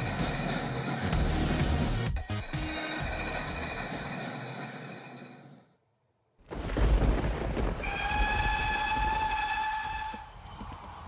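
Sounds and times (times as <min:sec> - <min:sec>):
music: 0:00.0 - 0:04.1
train rumbling: 0:00.0 - 0:05.6, 0:07.1 - 0:11.0
train horn: 0:07.8 - 0:10.3.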